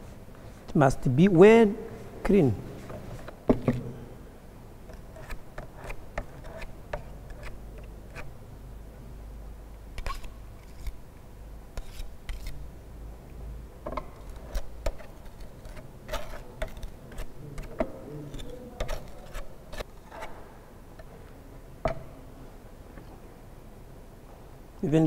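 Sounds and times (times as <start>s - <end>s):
spatula blades scraping: 4.9s - 8.3s, 11.8s - 12.6s, 14.2s - 20.4s
spatula scraping a glass plate: 14.2s - 20.4s.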